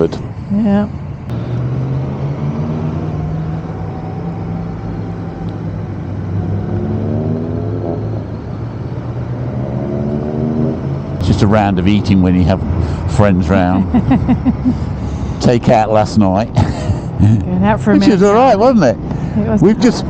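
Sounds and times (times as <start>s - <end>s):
wind and road noise: 0.0s - 20.0s
motorcycle engine revving: 1.3s - 12.9s.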